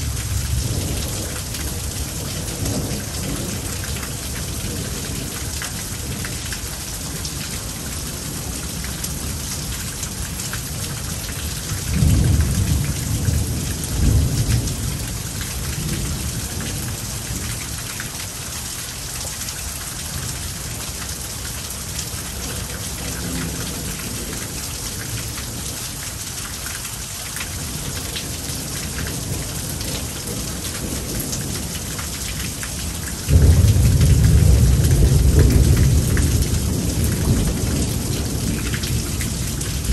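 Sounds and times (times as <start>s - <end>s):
rain falling: 0.0s - 39.9s
loud thunderclap: 33.3s - 39.9s
thunder rumbling: 33.3s - 39.9s.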